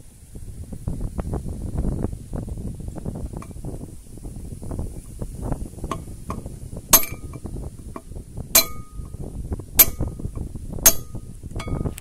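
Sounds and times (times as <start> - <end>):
metal-on-metal clinks: 7.0 - 7.4, 10.9 - 12.0.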